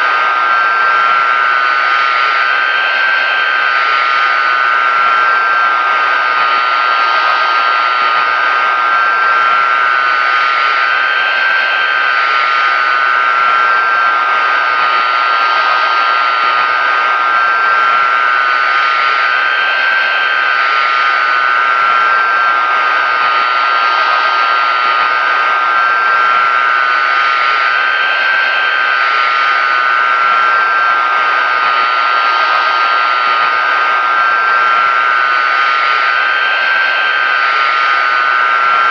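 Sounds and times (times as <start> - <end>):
jet engine whine and rush: 0.0 - 38.9.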